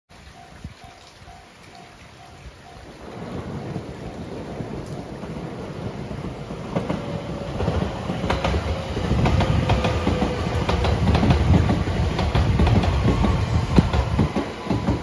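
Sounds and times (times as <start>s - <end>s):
electric train passing: 0.4s - 15.0s
wheels clacking over rail joints: 3.4s - 15.0s.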